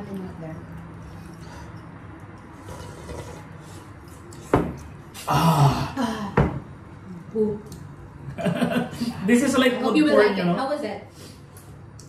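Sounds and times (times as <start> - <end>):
eating with bowls and utensils: 0.0 - 8.0.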